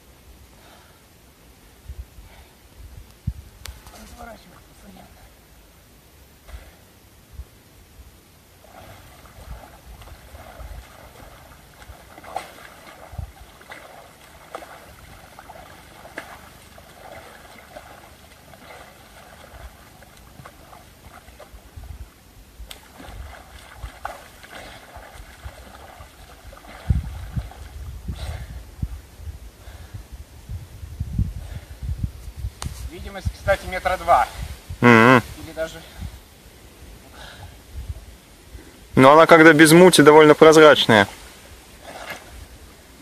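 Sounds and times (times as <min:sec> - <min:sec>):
water sloshing and gurgling: 0:08.5 - 0:29.1, 0:41.1 - 0:43.0
small crackles and ticks: 0:11.0 - 0:21.6.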